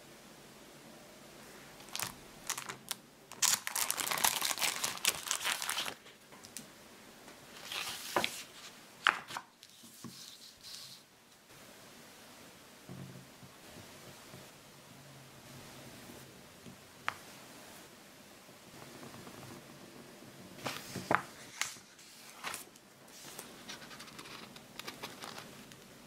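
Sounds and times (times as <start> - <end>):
plastic folder crinkling: 1.8 - 6.6, 7.6 - 10.4, 20.6 - 25.9
paper sheet rustling: 3.4 - 6.2, 7.6 - 11.0, 20.6 - 25.7.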